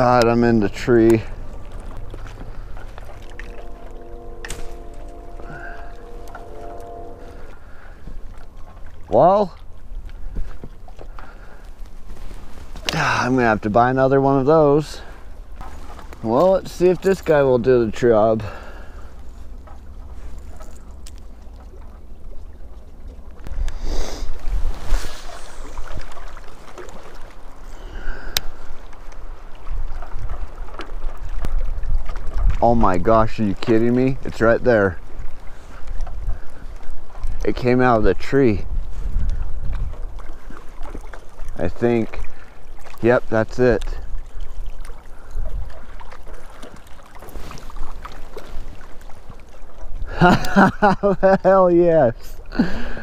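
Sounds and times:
waves lapping rocky shore: 0.0s - 53.0s
wind buffeting microphone: 23.4s - 27.2s, 28.0s - 50.1s.

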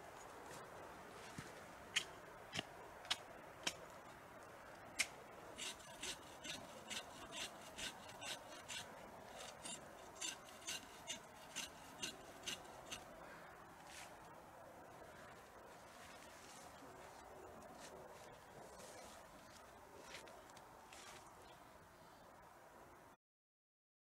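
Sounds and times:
blade scraping bark: 5.0s - 13.2s.

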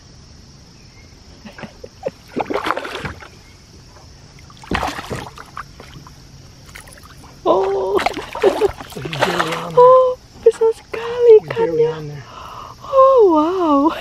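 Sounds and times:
water splashing against a canoe: 2.2s - 11.3s.

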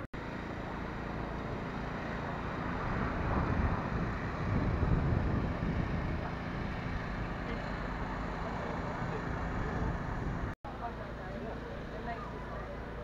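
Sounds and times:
wind buffeting microphone: 2.4s - 10.6s.

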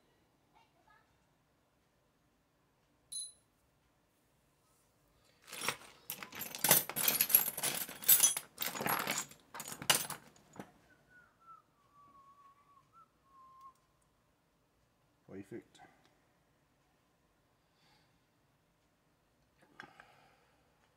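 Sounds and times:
short metallic ting: 3.1s - 3.4s
small metal parts clattering: 5.4s - 10.7s.

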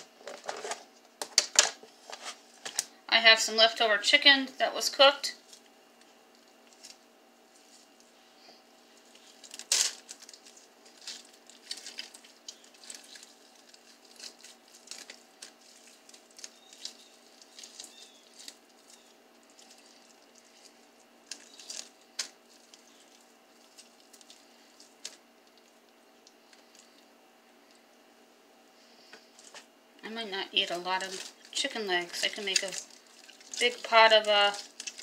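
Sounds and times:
meat squishing: 5.4s - 27.8s, 30.6s - 35.0s
plastic crinkling: 6.3s - 27.1s, 30.5s - 35.0s.

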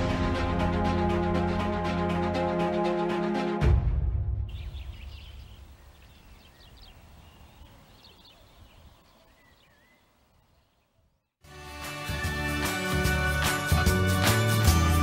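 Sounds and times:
small birds chirping: 4.5s - 11.4s.

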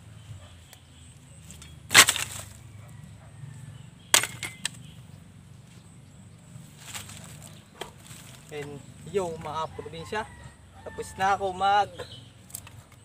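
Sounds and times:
wooden stakes clattering on ground: 1.4s - 2.7s, 4.1s - 5.0s, 6.8s - 9.6s.

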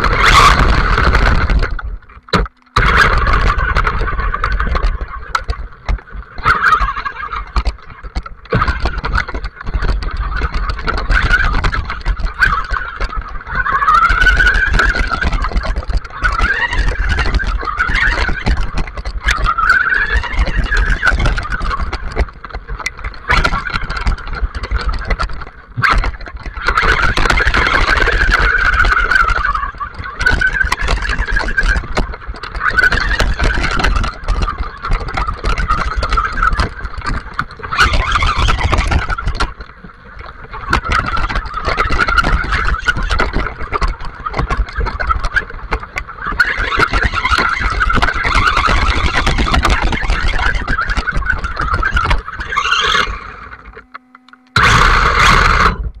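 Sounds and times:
electric motor whining: 52.0s - 56.0s.

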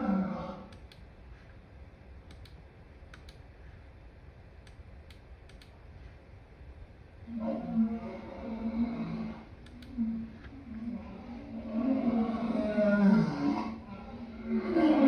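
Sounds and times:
faint low rumble: 0.0s - 15.0s
light clicks: 0.7s - 1.6s, 2.2s - 3.8s, 4.6s - 6.2s, 9.6s - 10.5s.

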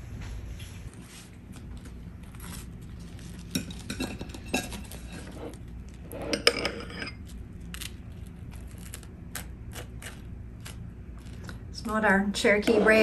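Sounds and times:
spoon scraping ceramic bowl: 4.0s - 7.2s, 12.4s - 13.0s.

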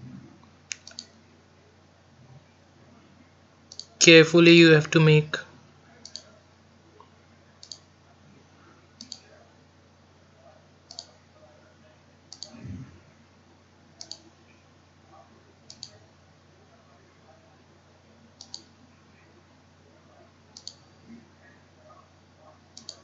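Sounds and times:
faint steady hum: 0.0s - 23.0s
computer mouse clicks: 0.7s - 1.2s, 3.7s - 4.0s, 6.0s - 6.3s, 7.6s - 7.9s, 9.0s - 9.3s, 10.9s - 11.2s, 12.3s - 12.7s, 14.0s - 14.3s, 15.7s - 16.0s, 18.4s - 18.7s, 20.5s - 20.9s, 22.7s - 23.0s.

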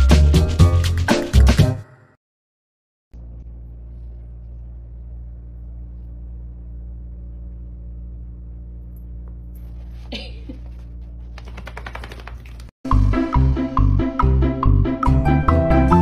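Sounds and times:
steady low hum: 3.2s - 11.5s.

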